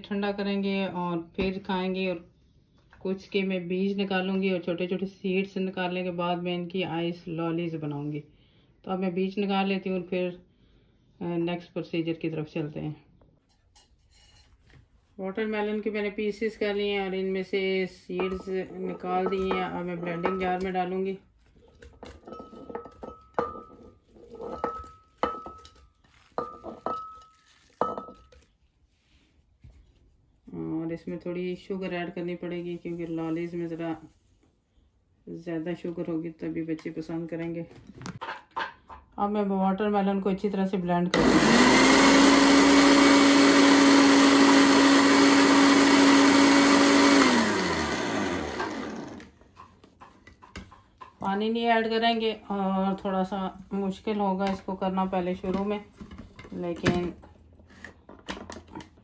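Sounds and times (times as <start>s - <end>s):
blender motor whining: 41.1s - 49.4s.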